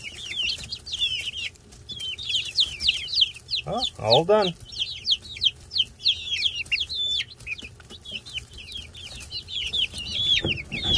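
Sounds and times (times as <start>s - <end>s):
chicks peeping: 0.0s - 10.9s.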